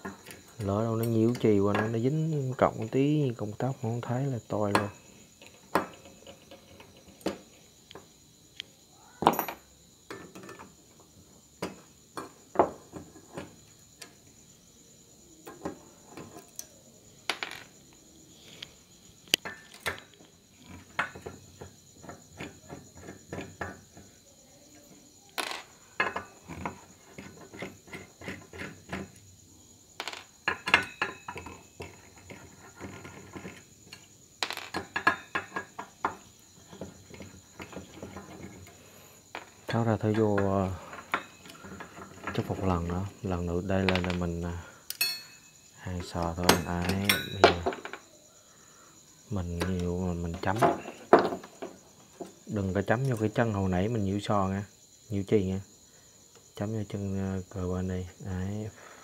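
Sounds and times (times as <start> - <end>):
parts knocking on workbench: 5.7 - 6.5, 9.2 - 10.7, 11.6 - 13.6, 17.3 - 17.7, 20.8 - 24.1, 25.4 - 29.1, 30.0 - 33.6, 34.4 - 38.6, 40.4 - 42.5, 43.8 - 44.2, 46.0 - 48.0, 49.6 - 52.4.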